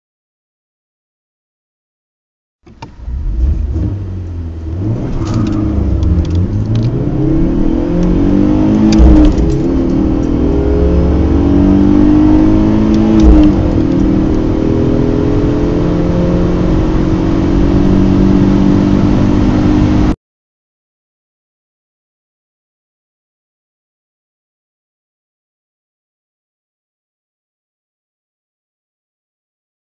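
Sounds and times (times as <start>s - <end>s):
car engines accelerating hard: 2.8s - 20.2s.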